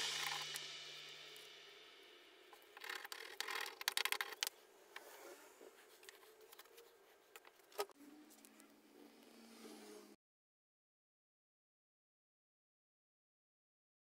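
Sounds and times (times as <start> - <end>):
objects handled on workbench: 2.5 - 8.5.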